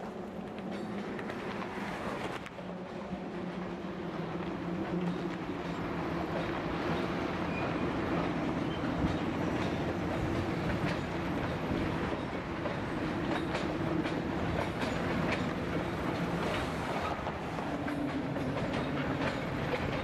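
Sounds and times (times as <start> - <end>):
freight train rumble: 0.0 - 20.0
wheels clicking over rail joints: 4.4 - 20.0.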